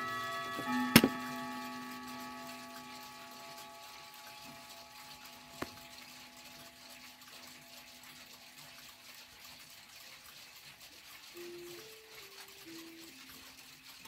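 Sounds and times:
metallic ringing: 0.0 - 9.2
clock clicking: 0.0 - 14.0.

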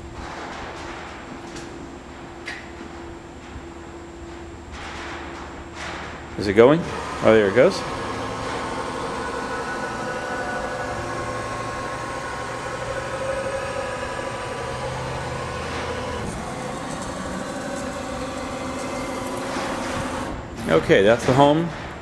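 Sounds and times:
milling machine drives whining: 5.7 - 22.0.

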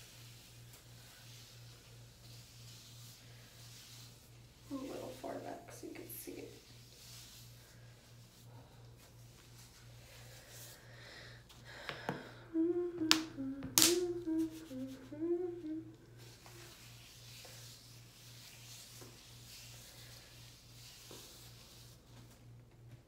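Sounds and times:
woman humming: 12.3 - 16.3.

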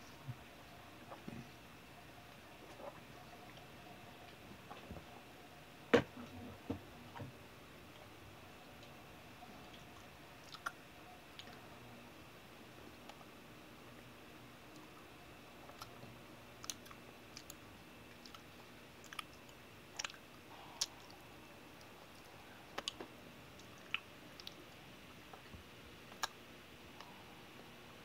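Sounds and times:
wet mouth clicks chewing: 9.7 - 10.8, 16.6 - 17.6, 18.2 - 21.2, 23.6 - 24.7.

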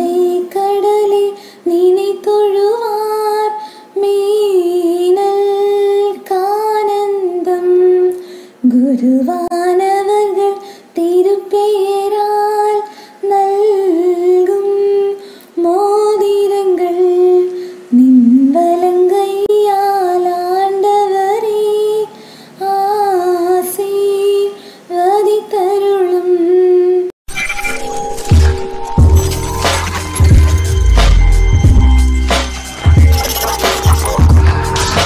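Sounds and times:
woman singing unaccompanied: 0.0 - 27.1.

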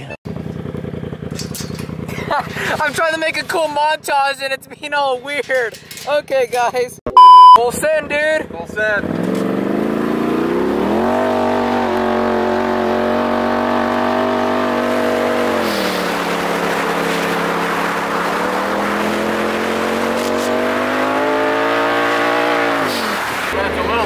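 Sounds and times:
engine under hard acceleration: 9.0 - 24.0.

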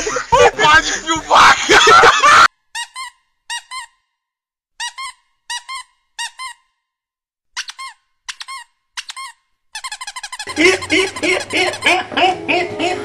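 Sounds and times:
squeaky-toy squeaks: 2.7 - 4.2, 4.8 - 6.8, 7.5 - 12.2.

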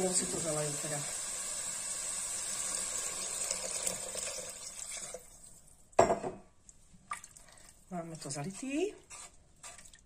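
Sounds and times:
water pouring into a pot: 0.0 - 5.6.

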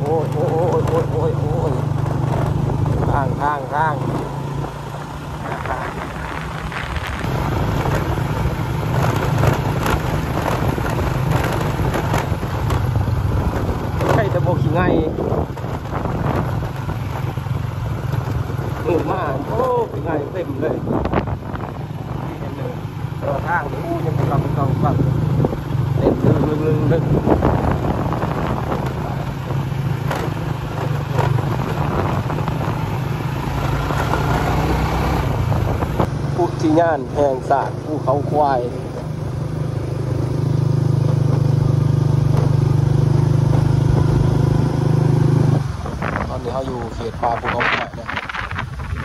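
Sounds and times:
broad rushing noise: 0.0 - 17.7
motorcycle engine running: 0.0 - 49.0
wind noise on microphone: 1.9 - 4.7, 5.3 - 37.0, 41.1 - 49.0.

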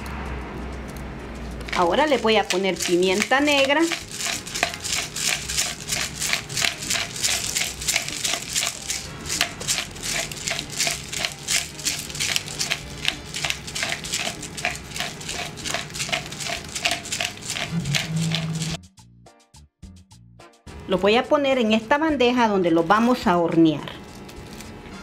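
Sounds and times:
pepper grinder crunching: 1.6 - 18.8, 22.9 - 25.0.

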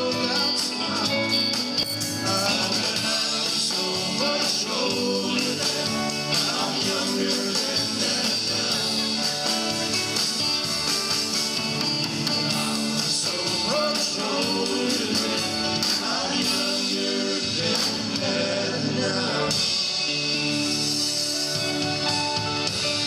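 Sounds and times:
person singing: 0.0 - 9.7, 12.5 - 21.2
drum kit: 0.0 - 23.0
electric guitars: 0.0 - 23.0
keyboard: 0.0 - 23.0.

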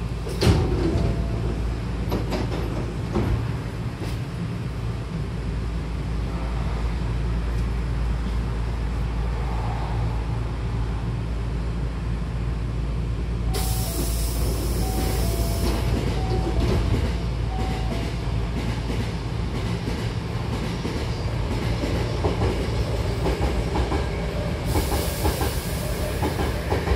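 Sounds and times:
train wheels clicking over rail joints: 2.0 - 4.3, 13.6 - 26.9
compressed air hiss: 13.6 - 15.6, 24.7 - 26.5.

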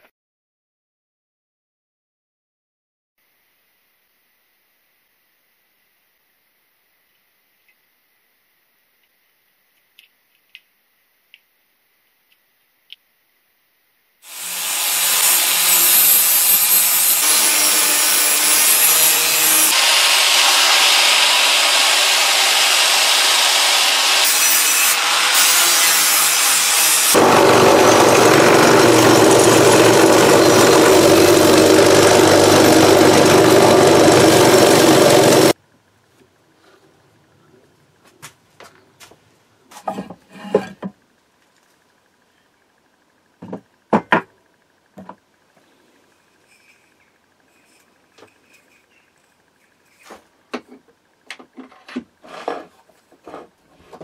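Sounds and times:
angle grinder grinding steel: 14.2 - 35.6.

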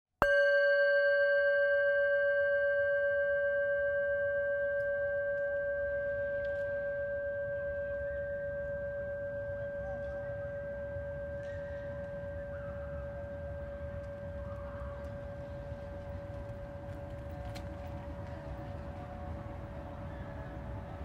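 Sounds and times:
singing bowl ringing: 0.2 - 16.8.

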